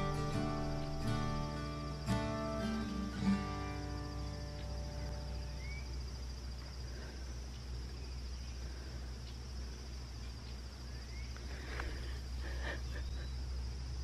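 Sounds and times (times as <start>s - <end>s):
insects trilling: 0.0s - 14.0s
low steady rumble: 0.0s - 14.0s
bird whistle: 5.4s - 5.9s.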